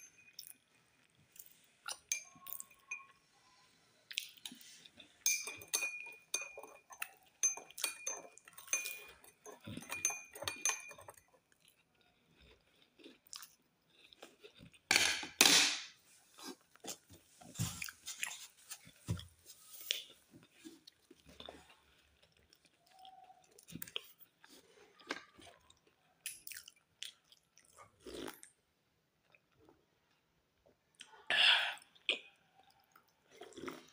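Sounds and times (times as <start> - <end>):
person chewing crusty bread: 11.2 - 14.9, 16.3 - 28.6, 31.9 - 33.9.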